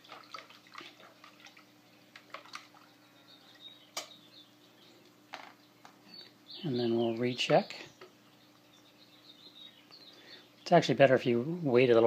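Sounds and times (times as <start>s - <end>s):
water swishing in bucket: 0.0s - 3.2s.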